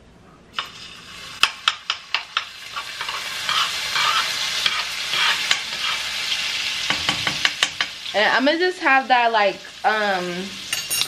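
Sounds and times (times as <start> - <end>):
sauce sizzling in pan: 0.6 - 11.0
utensil scraping pan: 2.2 - 6.2.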